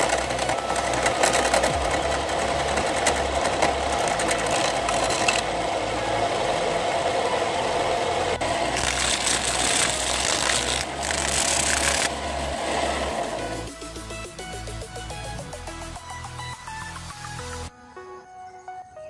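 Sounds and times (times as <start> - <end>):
wood lathe motor running: 0.0 - 13.7
sandpaper hissing on spinning wood: 8.4 - 14.2
chisel scraping wood: 8.8 - 12.2.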